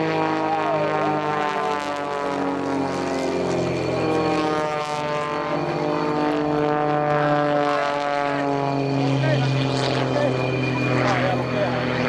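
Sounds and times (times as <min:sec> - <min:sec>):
propeller aircraft engine humming: 0:00.0 - 0:12.0.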